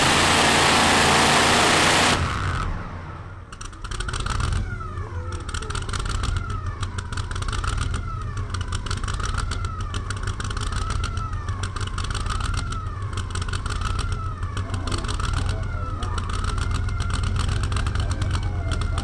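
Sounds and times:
truck engine idling: 0.0 - 19.0
siren wailing: 12.3 - 19.0.

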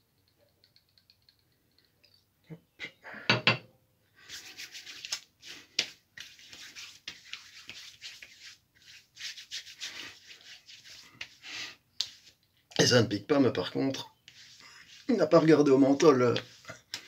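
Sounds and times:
hands patting skin: 4.2 - 12.6, 14.3 - 15.2, 16.0 - 17.0
hands rubbing skin: 4.2 - 12.7, 13.9 - 17.0.

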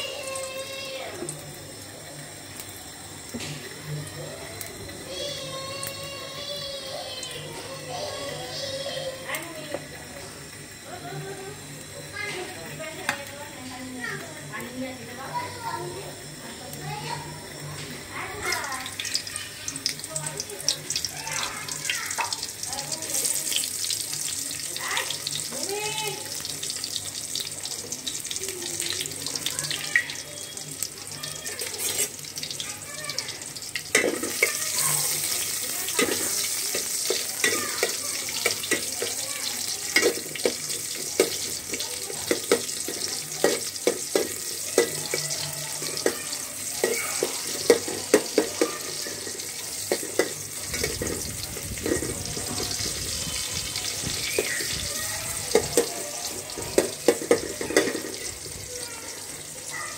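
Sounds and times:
onions sizzling in hot oil: 0.0 - 59.9
spatula scraping and tapping a pot: 31.6 - 32.1.

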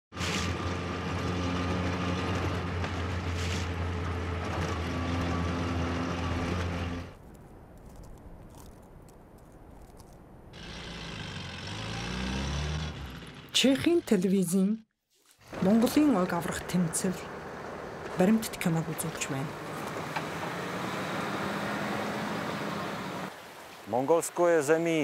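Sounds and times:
suv engine running: 15.8 - 23.3.

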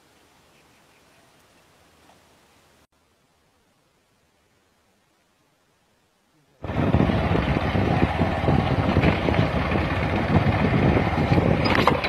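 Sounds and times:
motorcycle engine running: 6.6 - 12.0
wind noise on microphone: 6.6 - 12.0.

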